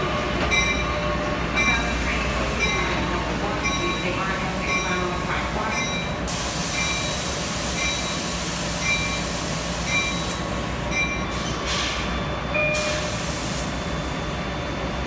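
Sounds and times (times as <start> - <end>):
loud hiss: 5.2 - 10.8.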